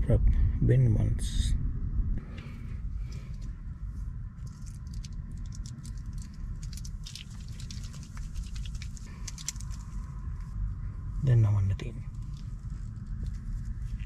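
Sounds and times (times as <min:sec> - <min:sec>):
low rumble: 0:00.0 - 0:14.0
foil packaging crinkling: 0:04.5 - 0:10.0.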